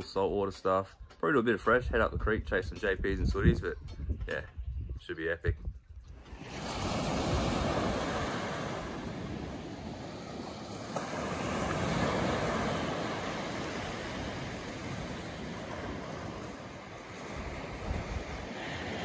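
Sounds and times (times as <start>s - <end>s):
surf washing up sandy beach: 6.2s - 19.0s.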